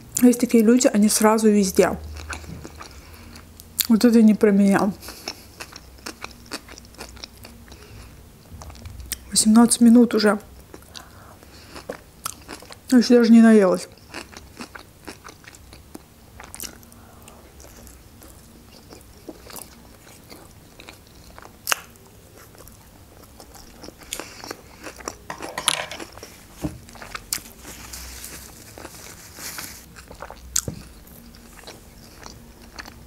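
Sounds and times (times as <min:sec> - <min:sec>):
person chewing food: 0:02.2 - 0:03.9, 0:05.0 - 0:09.2, 0:10.6 - 0:12.8, 0:13.9 - 0:33.0.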